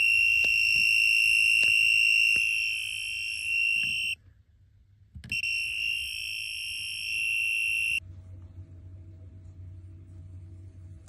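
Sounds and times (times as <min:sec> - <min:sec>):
voltage tester high-pitched beep: 0:00.0 - 0:04.2, 0:05.3 - 0:08.0.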